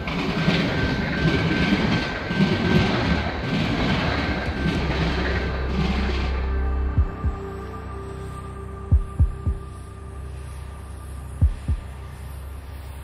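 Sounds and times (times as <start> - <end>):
wheels clattering on rails: 0.0 - 7.4
freight train cars rumbling: 0.0 - 13.0
faint steady high tone: 5.5 - 13.0.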